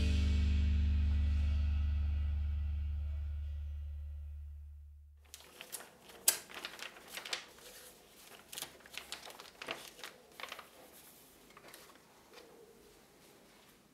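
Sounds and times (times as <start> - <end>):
magazine pages rustling: 5.2 - 13.9.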